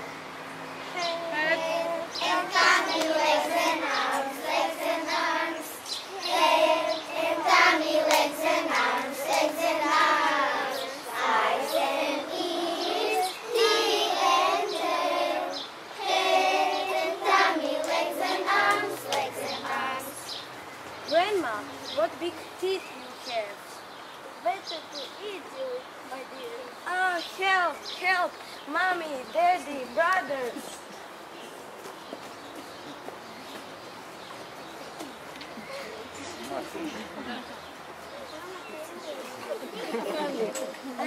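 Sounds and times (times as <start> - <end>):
children singing in chorus: 1.7 - 20.2.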